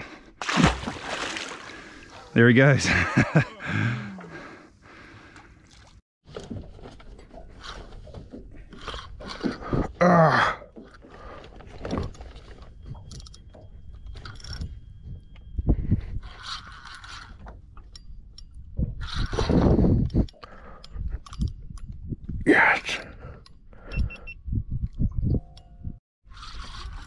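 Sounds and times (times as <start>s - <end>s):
fishing rod and reel handling: 7.6s - 9.6s, 16.2s - 21.9s, 26.3s - 27.0s.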